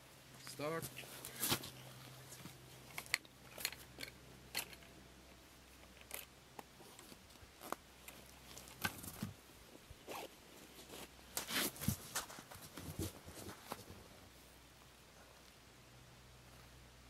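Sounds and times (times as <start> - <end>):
clothing rustling: 0.8 - 2.9, 6.8 - 14.3.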